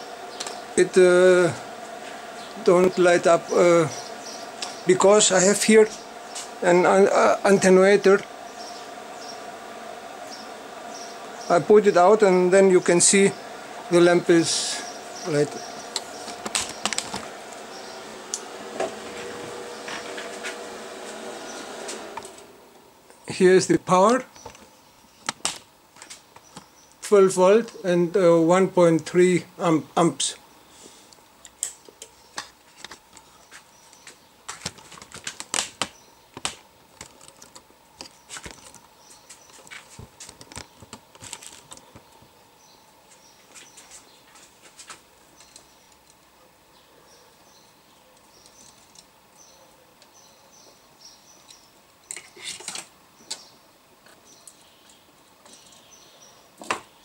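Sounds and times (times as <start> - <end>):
electronic equipment hum: 0.0 - 27.0
faint steady tones: 0.0 - 32.4.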